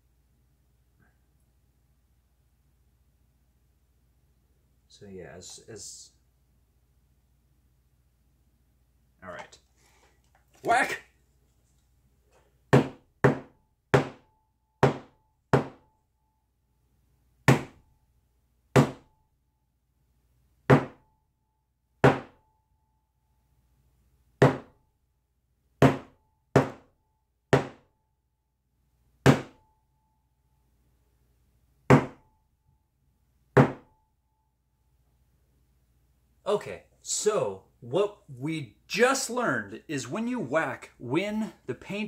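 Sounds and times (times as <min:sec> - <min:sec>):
hammer knocking on panel: 0:12.7 - 0:14.2, 0:14.8 - 0:15.8, 0:20.7 - 0:21.0, 0:25.8 - 0:26.8, 0:27.6 - 0:27.8, 0:31.9 - 0:32.2, 0:33.6 - 0:33.8.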